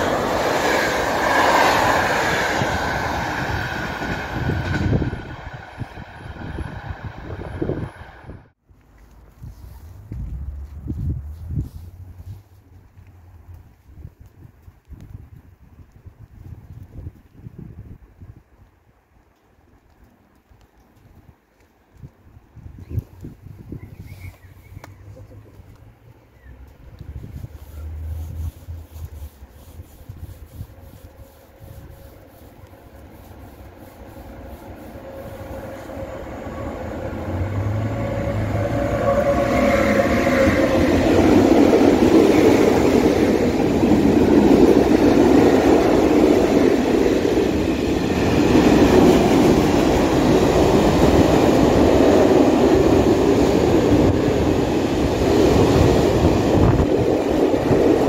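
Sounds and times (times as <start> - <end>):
freight train passing: 0.0 - 8.6, 24.0 - 58.0.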